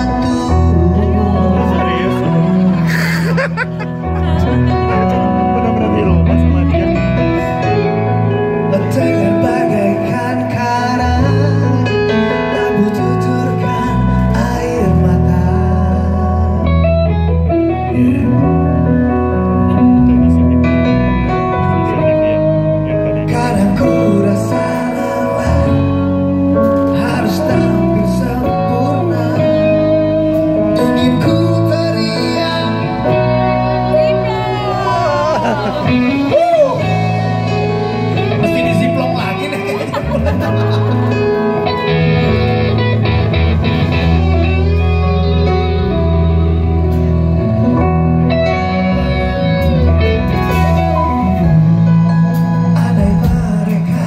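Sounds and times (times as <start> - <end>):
person singing: 0.0 - 19.0, 19.6 - 47.0, 47.6 - 54.0
electric bass: 0.0 - 54.0
electric guitar: 0.0 - 54.0
drums: 22.8 - 48.9, 49.6 - 54.0.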